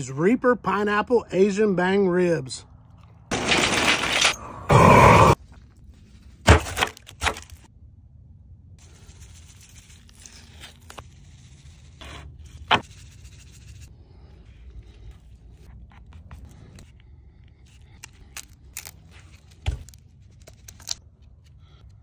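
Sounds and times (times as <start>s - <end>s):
charcoal chunks clattering into metal: 3.3s - 4.4s.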